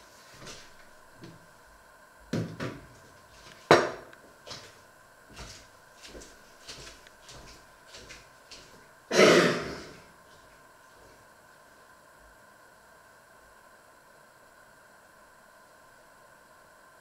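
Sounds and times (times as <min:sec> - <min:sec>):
tablet knocking on stove top: 0:03.7 - 0:04.1.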